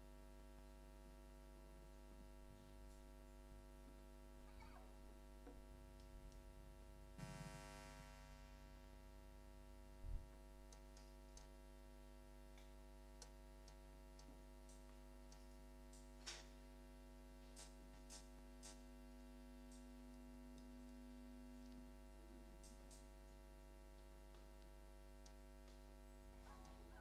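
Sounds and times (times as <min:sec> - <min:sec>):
electrical mains hum: 0:00.0 - 0:27.0
faint clicks: 0:12.5 - 0:16.5.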